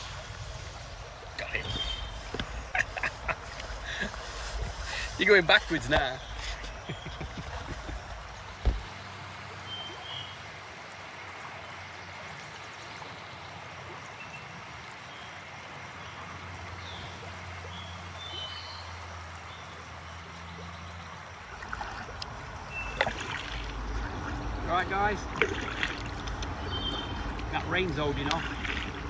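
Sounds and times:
river water flowing: 0:00.0 - 0:29.0
sharp knocks: 0:08.6 - 0:08.9
bird chirps: 0:22.7 - 0:23.2, 0:26.6 - 0:27.3.

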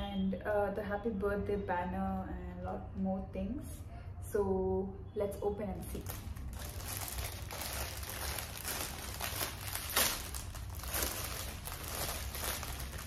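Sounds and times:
plastic packaging crinkling: 0:05.8 - 0:13.0.

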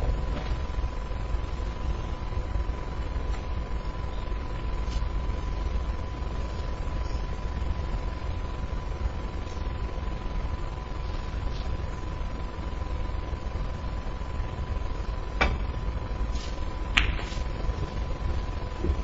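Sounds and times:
steady low hum: 0:00.0 - 0:19.0
balls colliding click: 0:16.9 - 0:17.3
cue striking ball click: 0:16.9 - 0:17.3.

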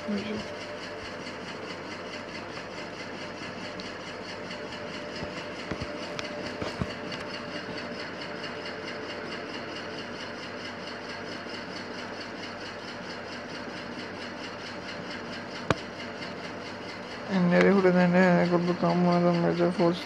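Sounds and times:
mechanical hum and hiss: 0:00.0 - 0:20.0.

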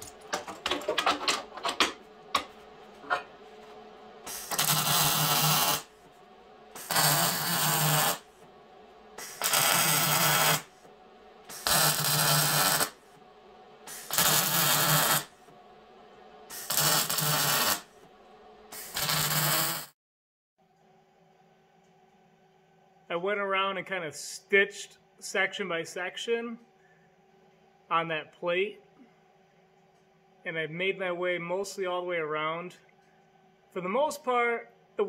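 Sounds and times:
welder arc crackling: 0:00.0 - 0:06.0, 0:06.7 - 0:08.4, 0:09.2 - 0:13.0, 0:13.9 - 0:15.4, 0:16.5 - 0:18.0, 0:18.7 - 0:19.9.

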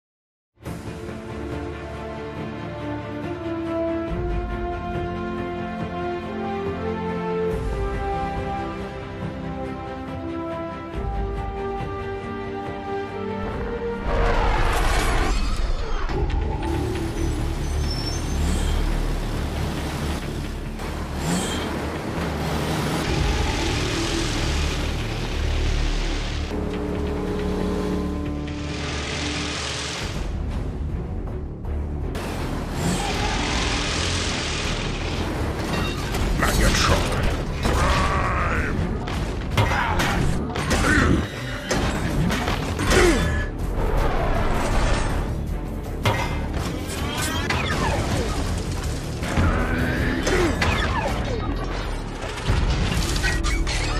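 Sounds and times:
background music: 0:00.6 - 0:53.9
heavy truck engine rumbling: 0:16.5 - 0:30.4
mechanical whirs: 0:32.6 - 0:35.6.

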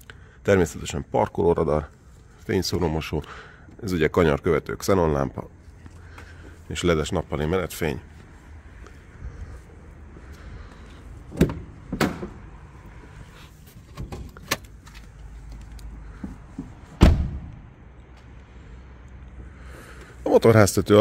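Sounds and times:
car door shutting thump: 0:17.0 - 0:17.5.

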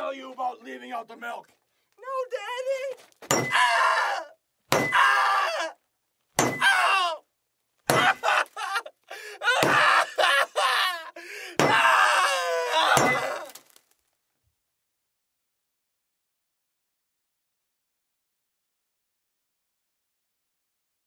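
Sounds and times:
young man screaming: 0:02.0 - 0:05.8, 0:06.5 - 0:07.2, 0:07.9 - 0:13.6.

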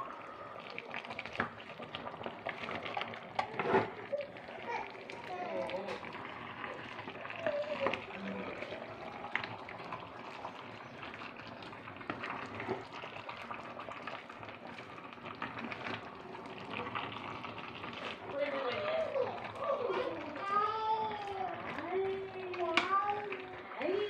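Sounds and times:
food simmering in pot: 0:00.0 - 0:24.0
wooden spoon stirring in pot: 0:00.0 - 0:24.0.

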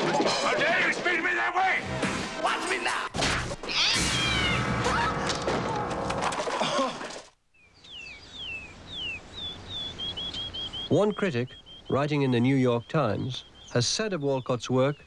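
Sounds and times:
tv promo soundtrack: 0:00.6 - 0:03.1
bird whistling and chirping: 0:07.6 - 0:15.0.

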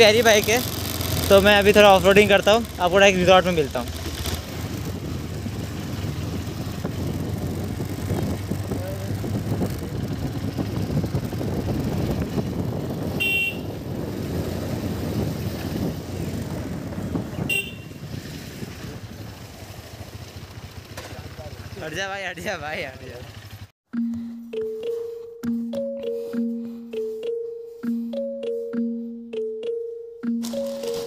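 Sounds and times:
motorcycle engine running: 0:00.0 - 0:23.7
wind and road noise: 0:00.0 - 0:23.8
horn toots: 0:13.0 - 0:13.8, 0:17.4 - 0:18.0.

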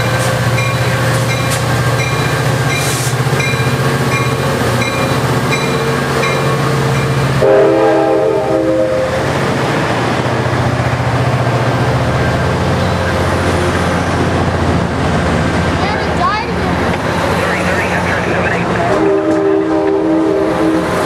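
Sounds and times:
locomotive bell ringing: 0:00.0 - 0:07.6
train horn blast: 0:07.4 - 0:09.4, 0:18.9 - 0:21.0
passenger cars rolling past: 0:09.4 - 0:20.0
diesel engine rumble: 0:11.6 - 0:20.4.

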